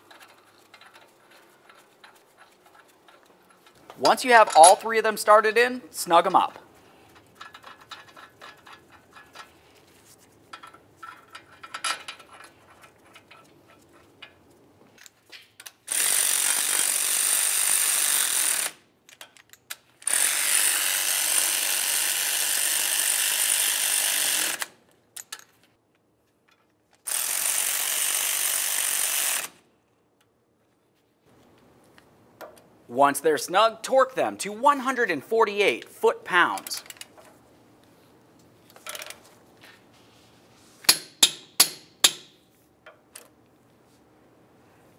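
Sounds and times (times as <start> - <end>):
light clicks of bolts and tool: 0.0 - 4.9, 7.1 - 9.5, 19.0 - 20.1, 25.2 - 27.0, 36.6 - 37.4
power ratchet running: 15.9 - 18.8, 20.0 - 24.7, 27.1 - 29.5.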